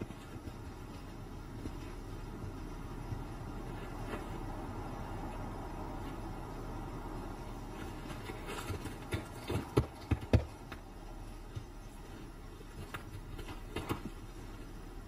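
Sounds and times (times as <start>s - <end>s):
low background hum: 0.0s - 15.0s
paw footsteps on snow and stones: 7.7s - 14.8s.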